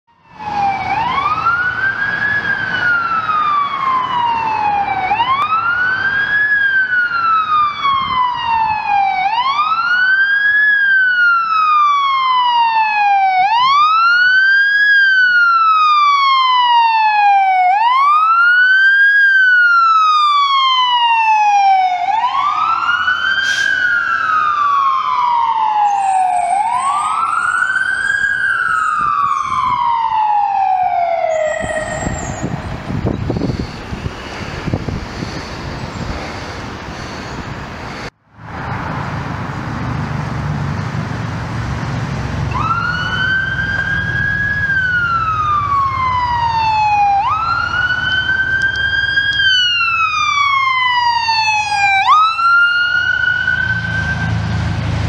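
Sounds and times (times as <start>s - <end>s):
electronic siren wailing: 0.1s - 35.7s, 42.4s - 54.8s
truck engine rumble: 21.4s - 55.0s.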